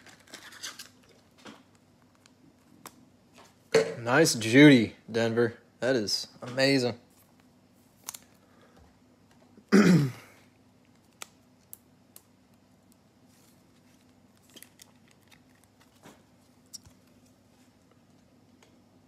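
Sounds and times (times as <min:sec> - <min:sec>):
low steady hum: 0:00.0 - 0:19.0
man clearing throat: 0:09.7 - 0:10.4.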